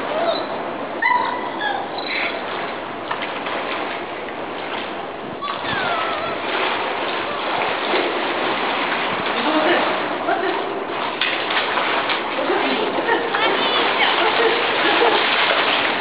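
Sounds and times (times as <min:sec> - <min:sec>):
river water rushing and splashing: 0:02.4 - 0:16.0.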